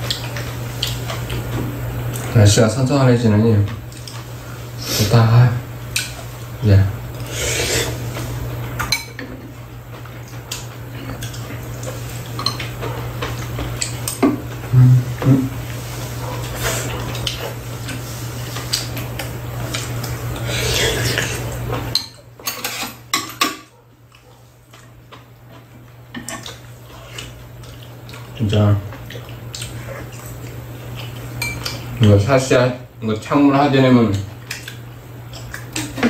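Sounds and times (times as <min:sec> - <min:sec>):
steady low hum: 0:00.0 - 0:36.0
utensils clinking against bowls: 0:08.8 - 0:09.4, 0:12.3 - 0:14.4, 0:20.7 - 0:23.8, 0:31.4 - 0:32.2.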